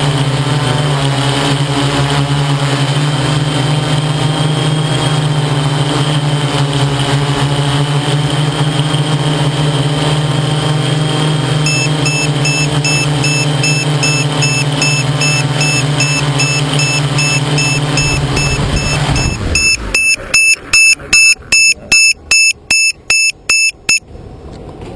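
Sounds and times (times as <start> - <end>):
drone motors humming: 0.0 - 24.0
high electronic beep: 11.6 - 24.0.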